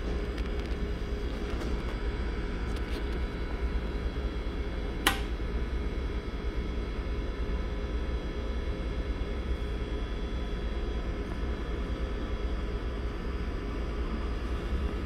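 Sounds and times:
steady low hum: 0.0 - 15.0
power switch click: 5.0 - 5.3.

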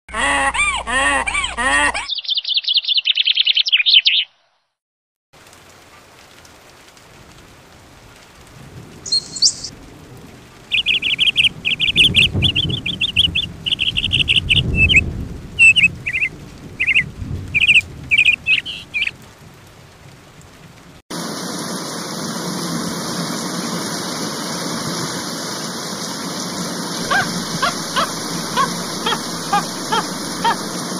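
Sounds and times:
birds chirping in trills: 2.0 - 4.4, 9.1 - 9.7, 10.7 - 15.0, 15.6 - 19.1, 26.9 - 30.9
running water rushing: 21.1 - 30.9.

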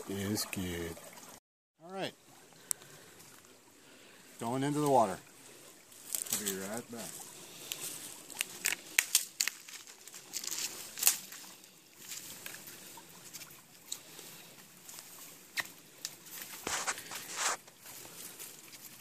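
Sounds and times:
branches snapping and rustling: 6.0 - 6.7, 7.6 - 11.4
footsteps on dry leaves: 6.0 - 12.4, 16.2 - 18.5.

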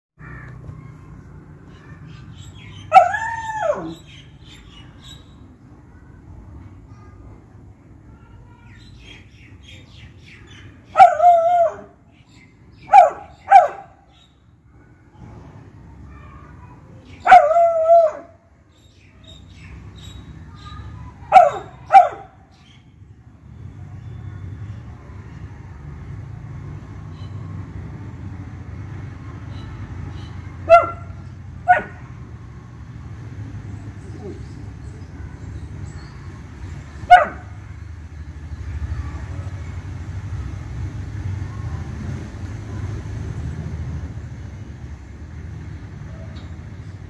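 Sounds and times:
dog bark-howl: 2.9 - 4.0, 17.2 - 18.3
dog barking: 12.9 - 14.0, 21.3 - 22.4, 30.6 - 32.0, 37.1 - 37.6.

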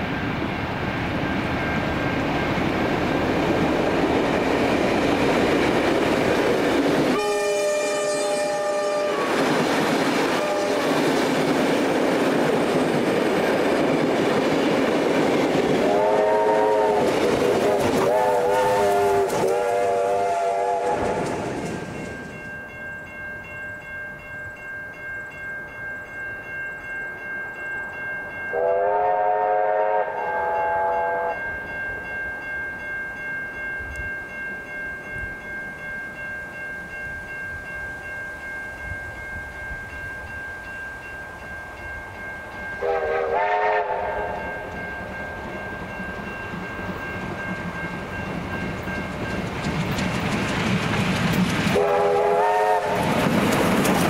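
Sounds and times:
train horn blasts: 7.1 - 9.4, 10.3 - 11.0, 15.8 - 21.4, 28.5 - 31.4, 42.8 - 44.6, 51.7 - 53.2
train wheels clacking: 8.6 - 22.5, 42.9 - 54.0
level crossing bells ringing: 21.9 - 28.8
diesel train engine running: 45.4 - 54.0.

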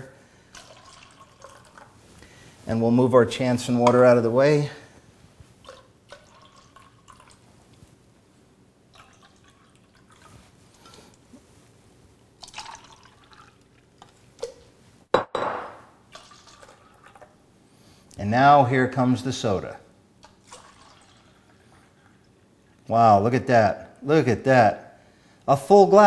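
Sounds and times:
water trickling into plastic cups: 0.4 - 2.0, 5.6 - 7.4, 8.9 - 11.2, 12.4 - 14.7, 16.1 - 17.4, 20.2 - 22.9.

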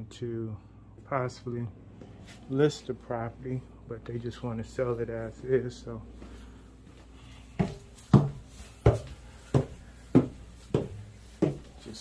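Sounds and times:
footsteps on wooden stairs: 6.2 - 12.0.

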